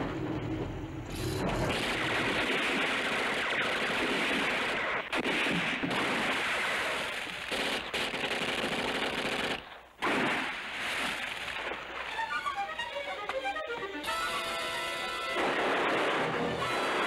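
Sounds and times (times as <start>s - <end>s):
automatic gunfire: 1.7s - 11.7s, 15.3s - 17.0s.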